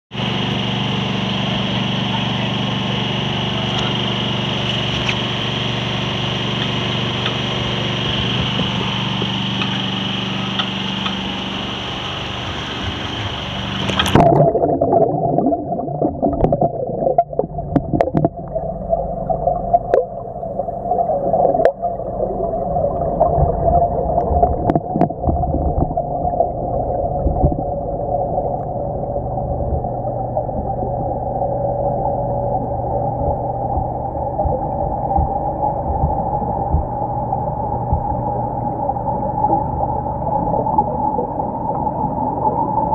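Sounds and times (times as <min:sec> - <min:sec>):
boat engine: 0:00.1 - 0:42.9
dull underwater hum: 0:00.1 - 0:42.9
wind: 0:00.2 - 0:14.3.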